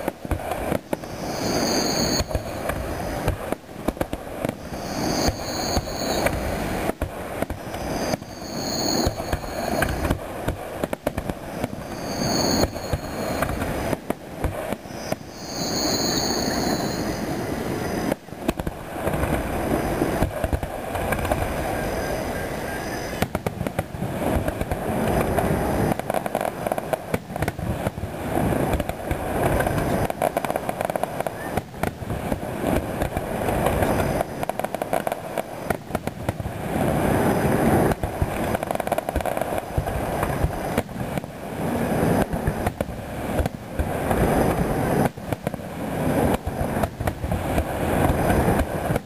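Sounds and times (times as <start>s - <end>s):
fireworks booming and crackling: 0.0s - 49.0s.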